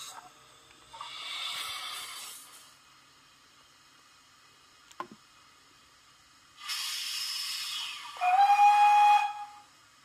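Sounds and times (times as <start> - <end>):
steam hissing: 0.9 - 3.0, 6.3 - 10.0
steam whistle blast: 6.6 - 9.8.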